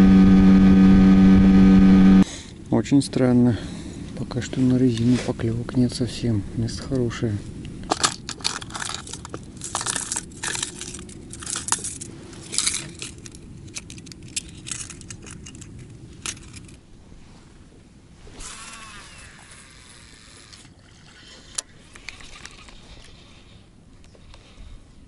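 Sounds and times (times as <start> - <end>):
plastic tackle box rattling: 7.9 - 16.8
fishing reel line whirring: 18.4 - 23.2.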